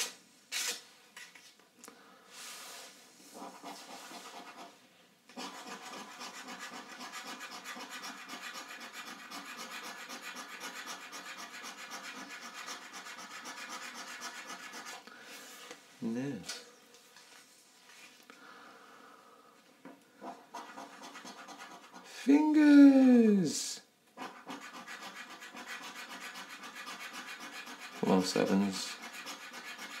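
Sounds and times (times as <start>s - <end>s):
coin scratching scratch card: 3.4s - 4.7s, 5.4s - 15.0s, 20.2s - 22.2s, 24.2s - 30.0s.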